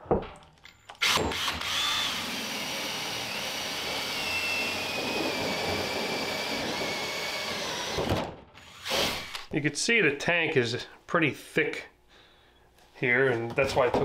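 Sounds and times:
drill with hole saw grinding plastic: 1.0s - 9.5s.

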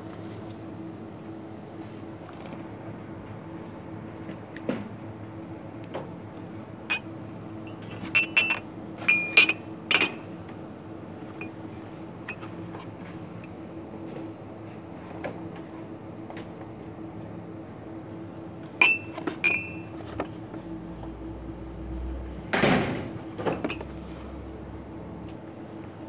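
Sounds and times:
steady low hum: 0.0s - 26.0s
ceramic mugs clinking: 6.9s - 7.1s, 7.7s - 10.3s, 18.8s - 20.2s, 23.5s - 23.9s.

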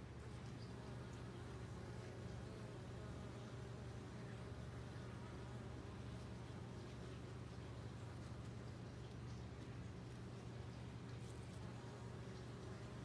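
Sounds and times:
bumblebees buzzing: 0.1s - 8.8s, 11.0s - 13.0s.

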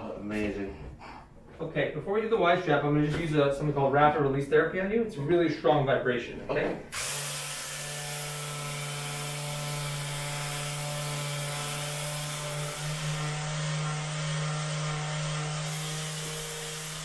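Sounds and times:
handheld vibration device buzzing: 6.9s - 17.0s.

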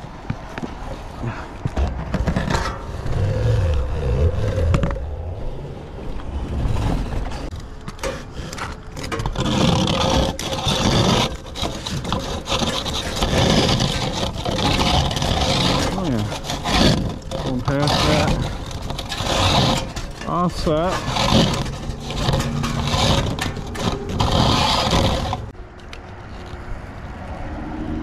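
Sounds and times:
metal vent liner scraping: 1.7s - 5.0s, 6.6s - 25.6s
shuffling on roof shingles: 6.5s - 25.5s.

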